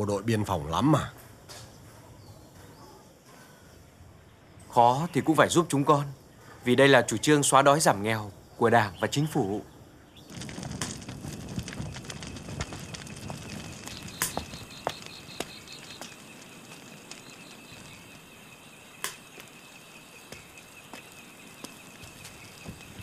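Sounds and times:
low rush of flames: 10.2 - 23.0
wood fire crackling and popping: 10.2 - 23.0.

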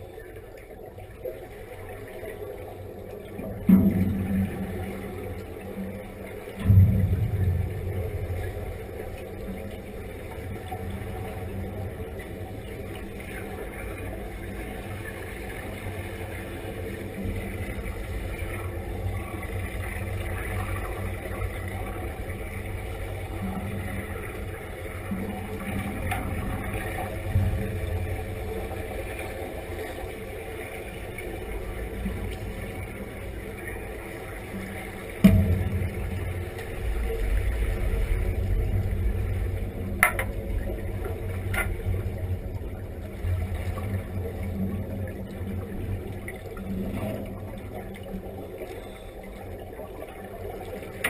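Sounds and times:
underwater bubbles rumbling: 0.0 - 51.0
sharp underwater knock: 35.2 - 36.5, 40.0 - 40.4.

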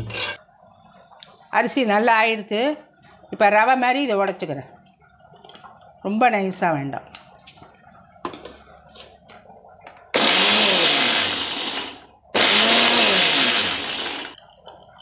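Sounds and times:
mixer grinder motor grinding rice: 10.2 - 14.4.

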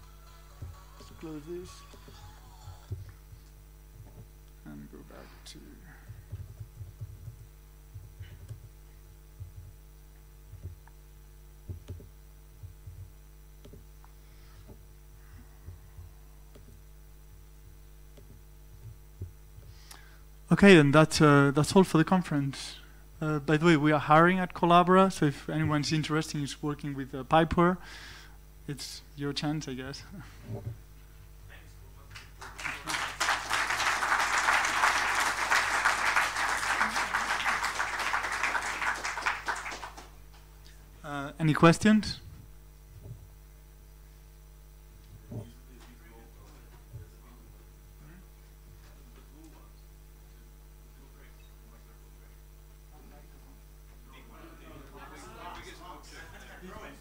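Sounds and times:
electrical mains hum: 0.0 - 57.0
audience applauding: 32.1 - 40.5.

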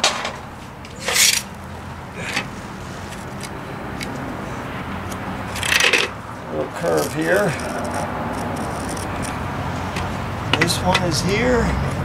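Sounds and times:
spirit level scraping on stone: 6.8 - 9.3.

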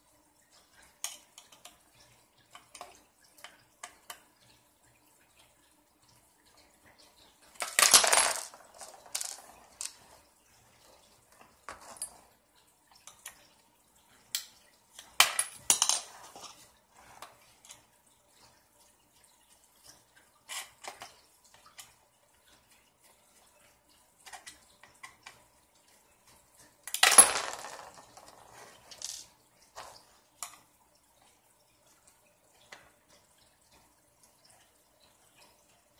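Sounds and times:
small parts clicking and clattering: 0.6 - 1.8, 7.4 - 13.4, 14.2 - 17.9, 20.4 - 22.0, 24.2 - 25.4, 26.6 - 30.7.

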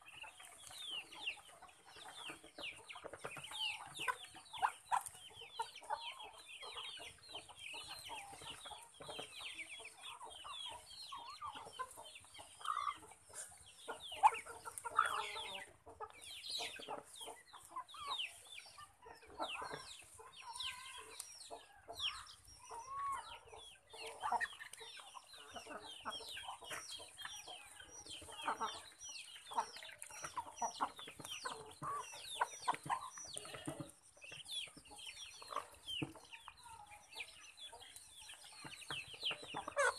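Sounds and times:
chickens clucking: 0.0 - 39.9
ducks chirping: 0.0 - 39.9.

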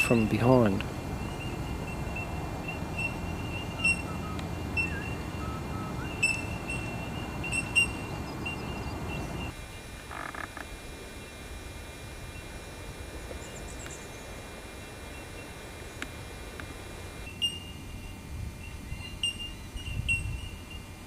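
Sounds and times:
steady low noise: 0.0 - 19.0
faint calls and ticks: 0.0 - 21.0
high-pitched chirping: 1.1 - 9.6.

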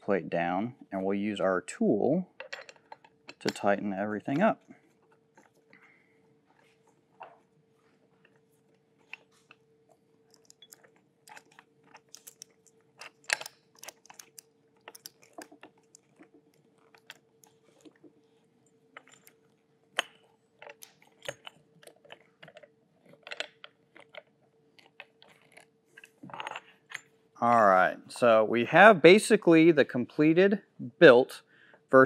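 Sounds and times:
faint steady hum: 0.0 - 32.0
mount parts clicking and knocking: 2.4 - 4.4, 10.3 - 16.1.

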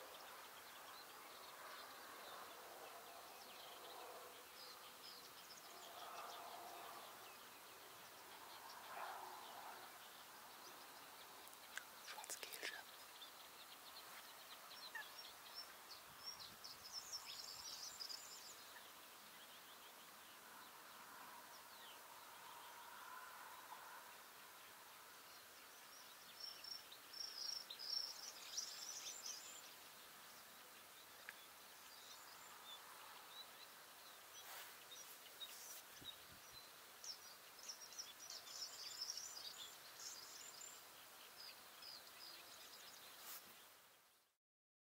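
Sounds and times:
songbird twittering: 10.1 - 19.8.

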